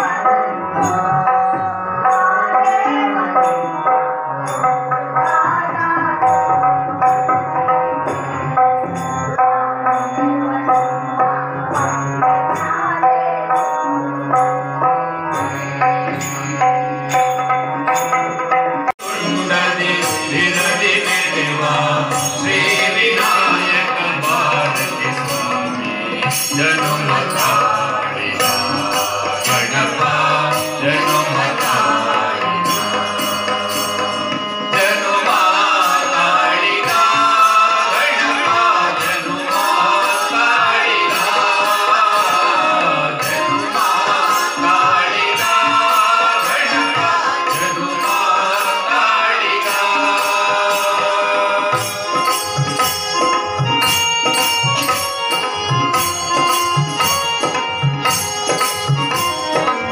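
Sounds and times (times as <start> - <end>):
instruments playing: 14.6 - 59.9
hand percussion beat: 15.3 - 59.9
group singing: 19.0 - 52.5.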